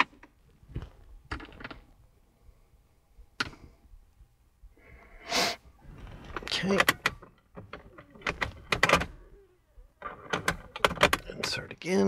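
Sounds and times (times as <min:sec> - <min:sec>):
hard objects clicking and knocking: 0:00.0 - 0:01.9, 0:06.2 - 0:09.2, 0:10.0 - 0:11.4
short hissing rush: 0:05.2 - 0:05.7.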